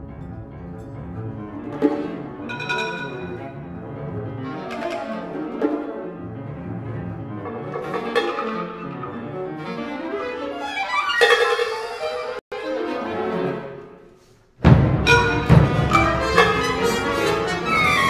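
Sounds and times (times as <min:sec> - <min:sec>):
chamber orchestra playing: 0:00.0 - 0:18.0
sharp accented string attacks: 0:01.8 - 0:04.0, 0:14.6 - 0:18.0.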